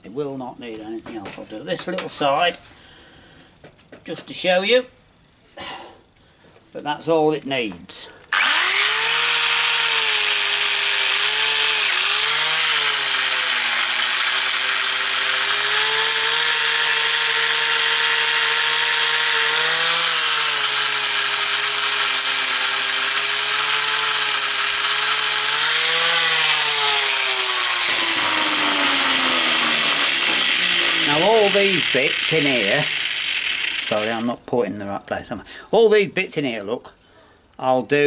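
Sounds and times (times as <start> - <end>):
angle grinder with wire brush: 8.3 - 34.3.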